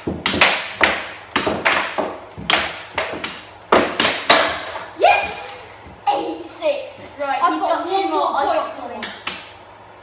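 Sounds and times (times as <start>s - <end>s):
air hockey puck clacking: 0.0s - 4.9s.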